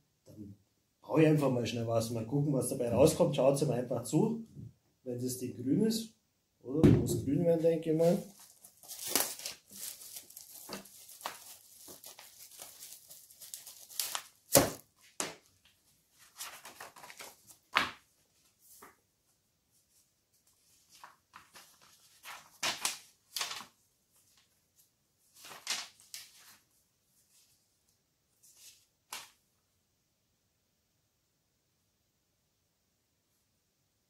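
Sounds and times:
paper pages rustling: 7.9 - 19.0, 19.7 - 27.6, 28.4 - 29.4.

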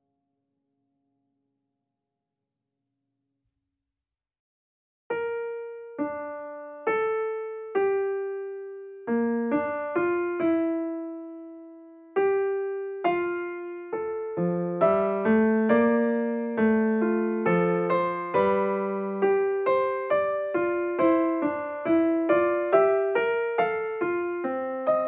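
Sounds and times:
slow solo piano melody: 5.1 - 25.0.

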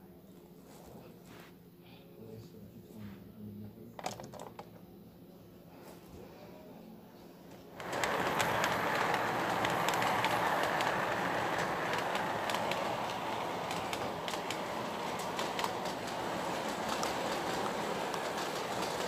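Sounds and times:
model train wheels rumbling on rail: 7.8 - 19.0
sharp track clicks: 7.8 - 19.0.

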